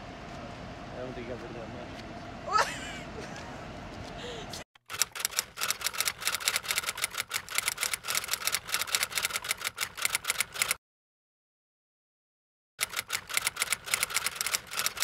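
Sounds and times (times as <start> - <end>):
typewriter keys clacking: 4.9 - 10.8.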